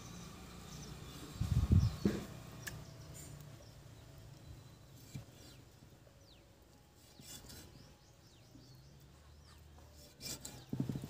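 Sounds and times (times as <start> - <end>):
faint birds chirping: 0.0 - 11.0
knife scraping on wood: 7.0 - 8.1, 9.8 - 11.0.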